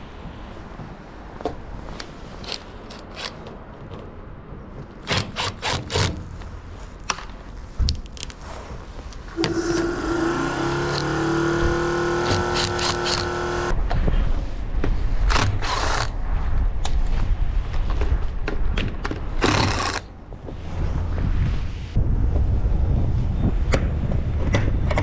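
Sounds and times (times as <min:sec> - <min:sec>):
impact driver motor whining: 0:09.4 - 0:13.7.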